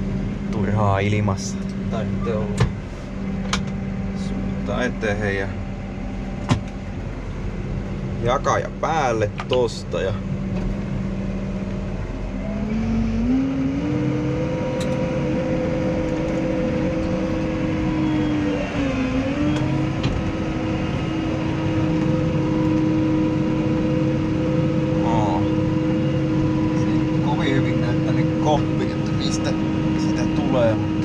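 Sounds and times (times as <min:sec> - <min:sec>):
tractor diesel engine revving: 0:09.9 - 0:31.0.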